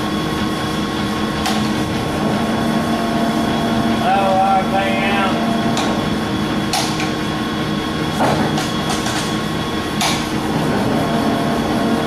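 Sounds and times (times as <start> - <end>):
lathe running with whine: 0.0 - 12.0.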